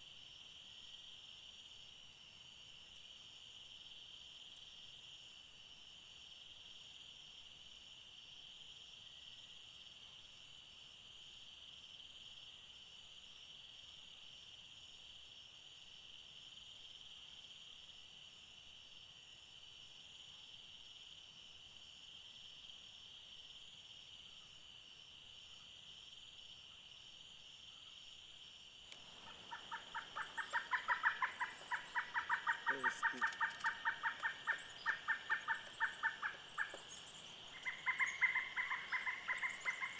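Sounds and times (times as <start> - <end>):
insects chorus: 0.0 - 39.9
woodpecker calling: 28.9 - 39.9.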